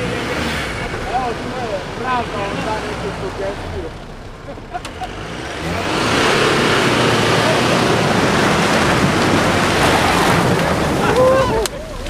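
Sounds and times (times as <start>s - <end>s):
engine running under load: 0.0s - 12.0s
tyres churning mud: 0.0s - 12.0s.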